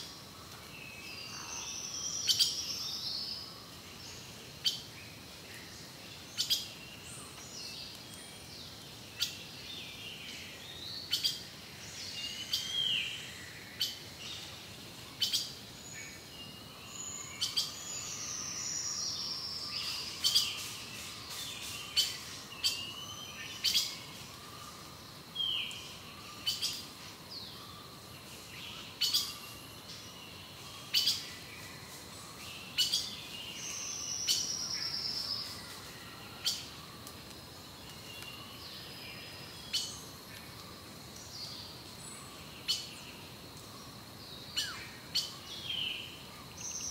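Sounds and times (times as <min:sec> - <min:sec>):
soft background hiss: 0:00.0 - 0:46.9
songbirds calling: 0:00.0 - 0:46.9.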